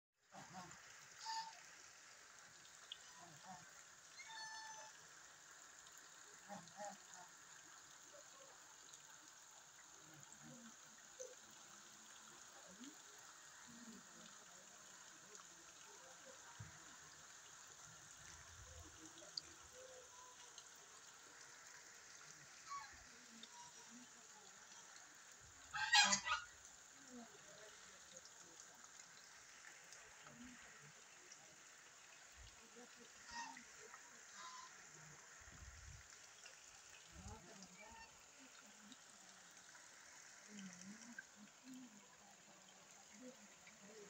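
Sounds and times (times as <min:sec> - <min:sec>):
rain falling on water: 0:00.2 - 0:44.0
goose honking: 0:01.2 - 0:01.6, 0:04.2 - 0:05.0, 0:25.7 - 0:26.5, 0:33.2 - 0:33.6, 0:34.3 - 0:34.8.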